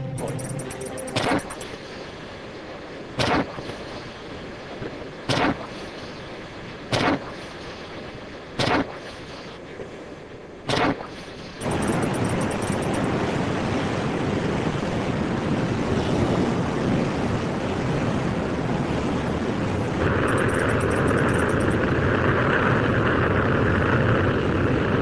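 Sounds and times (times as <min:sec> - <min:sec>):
missile jet noise: 0:00.0 - 0:06.3, 0:10.7 - 0:13.7, 0:18.3 - 0:25.0
wind and sea roar: 0:00.0 - 0:25.0.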